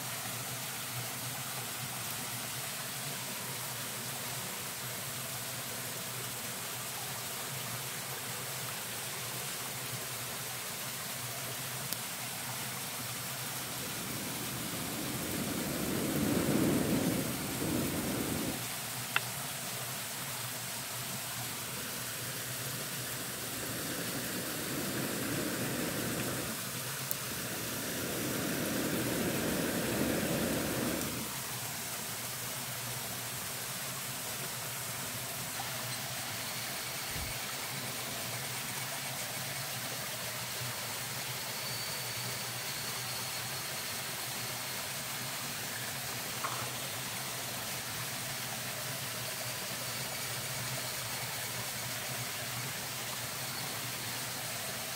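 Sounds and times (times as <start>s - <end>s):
steady rushing hiss: 0.0s - 54.9s
campfire crackling: 12.9s - 19.3s, 21.6s - 31.4s.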